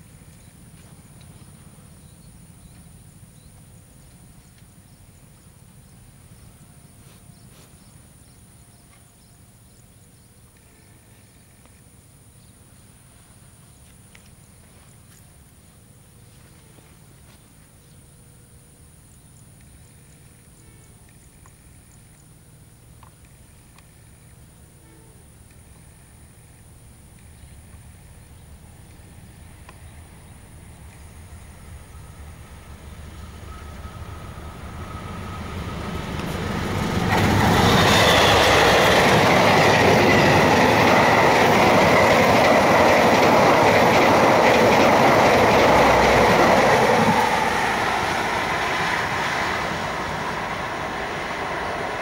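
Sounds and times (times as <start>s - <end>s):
diesel locomotive rumble: 26.0s - 52.0s
high thin whine: 30.9s - 52.0s.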